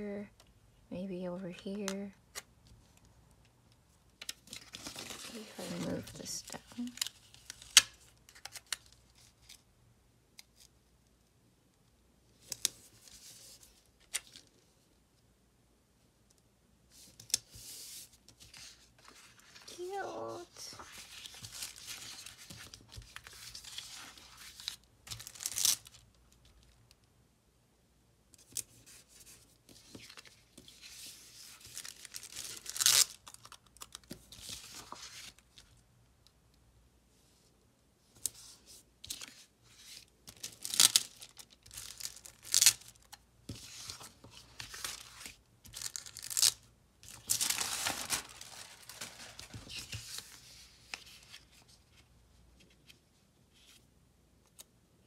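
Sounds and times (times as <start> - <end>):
paper pages rustling: 4.2 - 9.6, 17.0 - 26.6, 28.4 - 35.7, 38.2 - 53.8.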